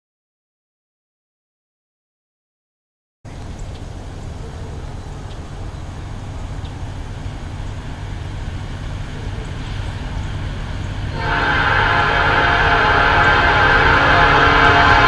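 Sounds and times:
locomotive rumbling: 0:03.3 - 0:15.0
train air horn chord: 0:11.0 - 0:15.0.

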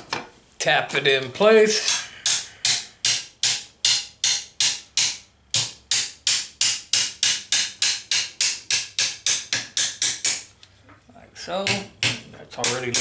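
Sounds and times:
hammer tapping sheet metal: 0:01.7 - 0:10.5, 0:11.6 - 0:13.0.

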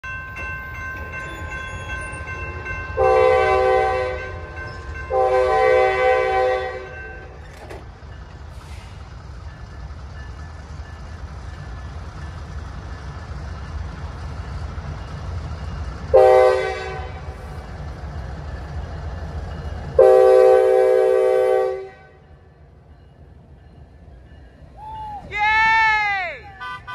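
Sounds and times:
locomotive engine rumble: 0:00.0 - 0:26.9
train air horn blasts: 0:03.0 - 0:04.4, 0:05.1 - 0:07.3, 0:16.1 - 0:17.4, 0:20.0 - 0:22.2.

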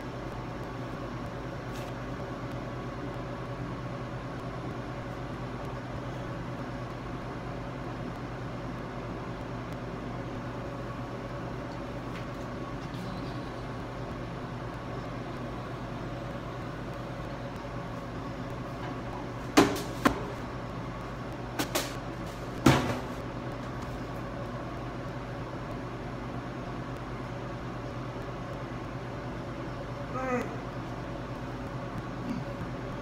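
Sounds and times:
low equipment hum: 0:00.0 - 0:33.0
ventilation hiss: 0:00.0 - 0:33.0.

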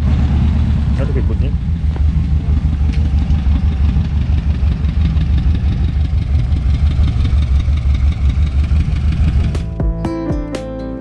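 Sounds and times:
motorcycle engine running: 0:00.0 - 0:10.1.

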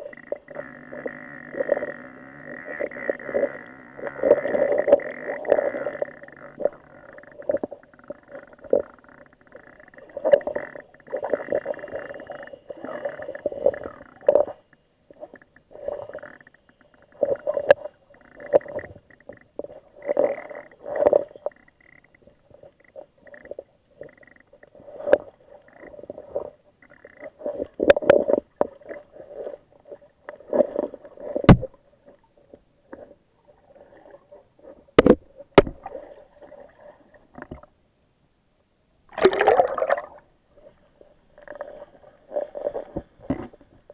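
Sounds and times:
muffled underwater gurgling water: 0:00.0 - 0:37.6
rush of water at surface: 0:39.1 - 0:40.2.

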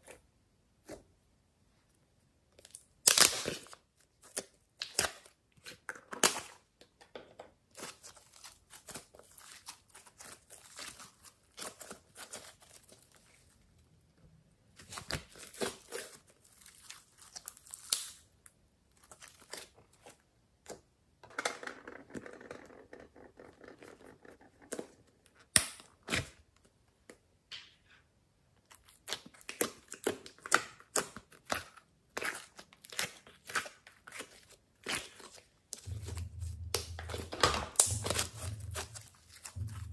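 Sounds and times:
slime crackling and popping: 0:02.6 - 0:03.7, 0:14.9 - 0:18.2, 0:28.7 - 0:39.9
plastic containers crinkling: 0:28.9 - 0:39.9.

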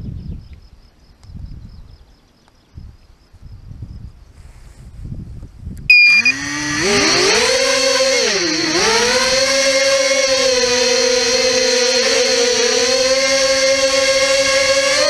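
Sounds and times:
low wind rumble: 0:00.0 - 0:15.0
short beep: 0:05.9 - 0:06.4
quadcopter motors whining: 0:05.9 - 0:15.0.

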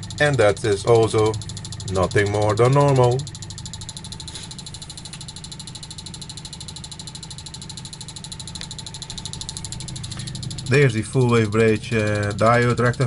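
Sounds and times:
pulse motor rapid pulsing: 0:00.0 - 0:13.0
steady motor hum: 0:00.0 - 0:13.0.

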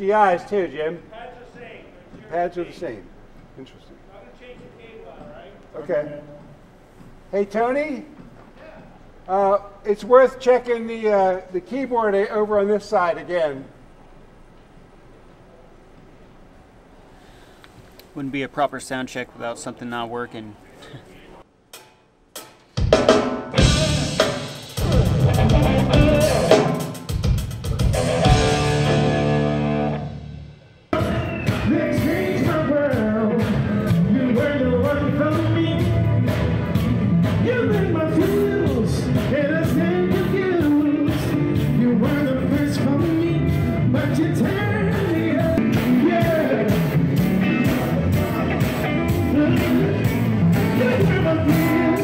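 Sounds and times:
live band playing: 0:22.9 - 0:52.0
person singing lead vocals: 0:23.6 - 0:26.8, 0:31.0 - 0:36.4, 0:37.2 - 0:52.0.

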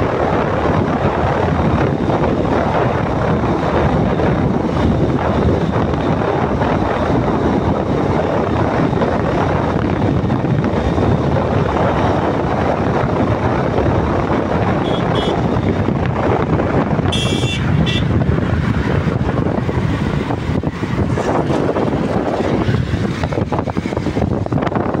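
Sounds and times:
motorcycle engine roar: 0:00.0 - 0:25.0
wind rushing over microphone: 0:00.0 - 0:25.0.

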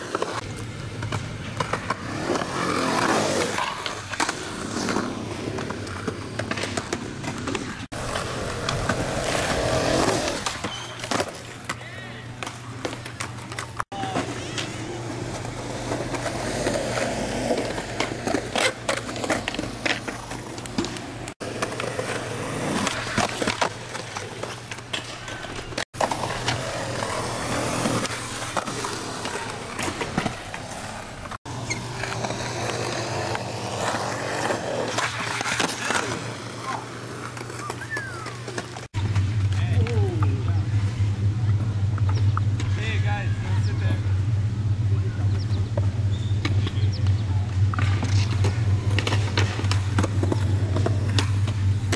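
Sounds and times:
skateboard clacks: 0:00.0 - 0:40.7, 0:45.2 - 0:51.9
skateboard wheels rolling on concrete: 0:00.0 - 0:51.9
board scraping along concrete ledge: 0:13.1 - 0:39.4.

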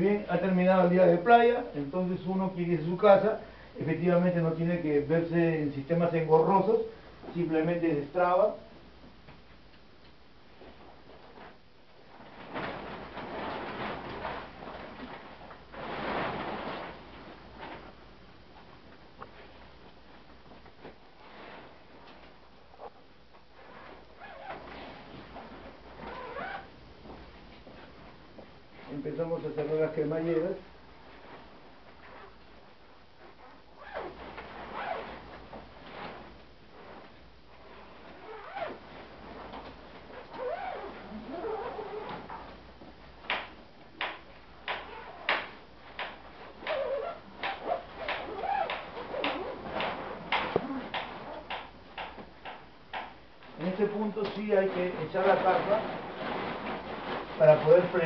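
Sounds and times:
tent rustling and rattling: 0:10.6 - 0:18.0, 0:18.6 - 0:22.7, 0:23.6 - 0:28.9, 0:30.9 - 0:42.6, 0:44.2 - 0:52.6, 0:53.4 - 0:58.0
tent zippers rasping: 0:23.6 - 0:25.0, 0:25.9 - 0:26.7, 0:33.2 - 0:35.2, 0:37.7 - 0:38.8, 0:40.1 - 0:42.5, 0:44.7 - 0:45.3, 0:46.3 - 0:51.6.

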